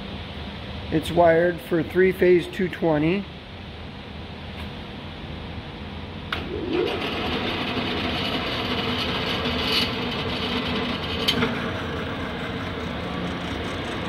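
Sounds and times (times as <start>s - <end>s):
lathe whirring: 6.4s - 14.0s.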